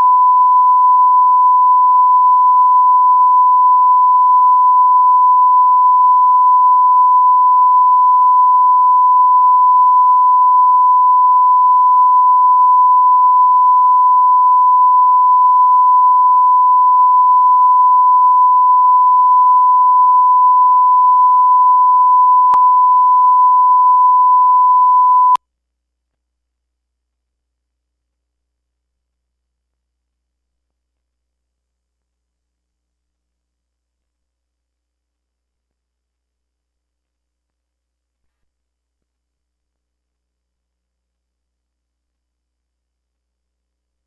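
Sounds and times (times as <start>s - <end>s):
reference tone: 0.0s - 25.4s.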